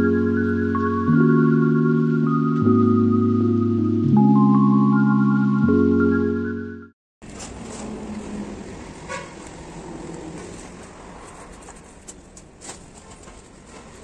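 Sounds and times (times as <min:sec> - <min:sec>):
rumble of passing vehicles: 0:07.3 - 0:12.6.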